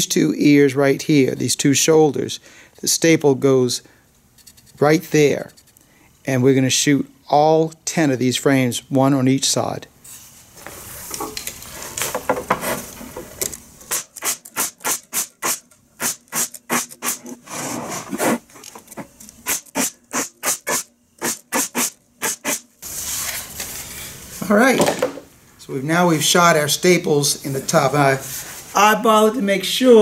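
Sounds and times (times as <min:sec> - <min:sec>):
pneumatic stapler firing: 0:13.9 - 0:17.4, 0:19.4 - 0:22.6.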